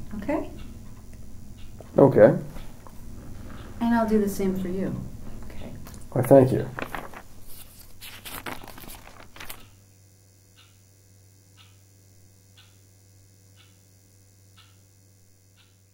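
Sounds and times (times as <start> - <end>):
faint low hum: 0.0 - 15.9
rustling and handling noises: 5.2 - 9.8
soft ticks: 12.5 - 12.8, 13.5 - 13.8, 14.5 - 14.8, 15.5 - 15.8.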